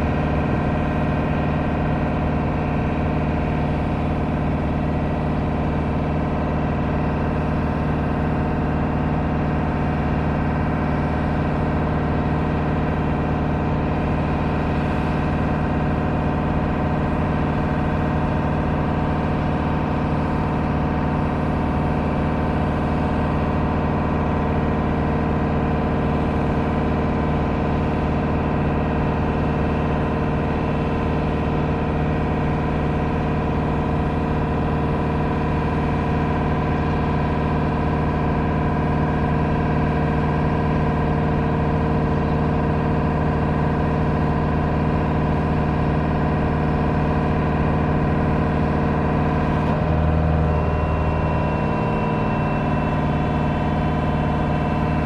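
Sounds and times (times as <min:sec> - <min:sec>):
diesel engine droning steadily: 0:00.0 - 0:55.0.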